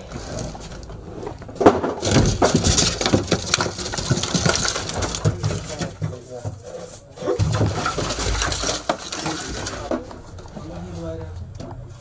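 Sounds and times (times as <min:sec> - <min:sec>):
boxes and boards knocking: 0:00.0 - 0:10.3.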